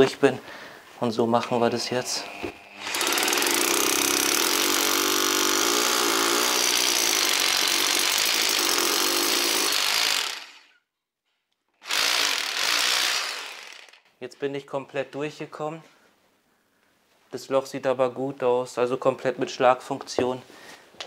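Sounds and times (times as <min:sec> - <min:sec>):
rotary hammer drilling into wall: 0:02.1 - 0:10.8, 0:11.8 - 0:14.1.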